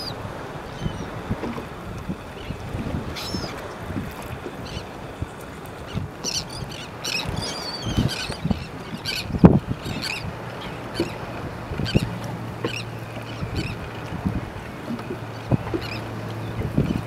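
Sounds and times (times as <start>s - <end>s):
birds squawking: 3.1s - 3.6s, 5.9s - 11.2s, 11.8s - 13.8s, 15.4s - 16.1s.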